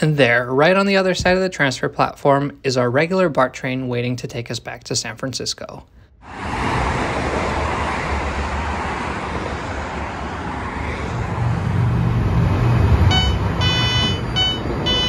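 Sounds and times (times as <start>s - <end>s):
train rumble: 6.3s - 15.0s
high electronic beeping: 13.1s - 15.0s.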